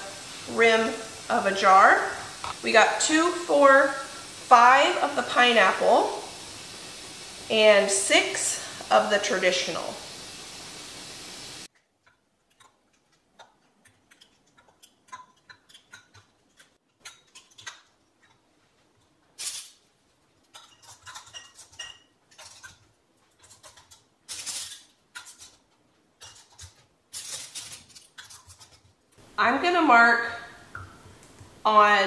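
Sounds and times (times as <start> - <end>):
screw bands scraping on threads: 12.0 - 18.4, 20.5 - 29.0.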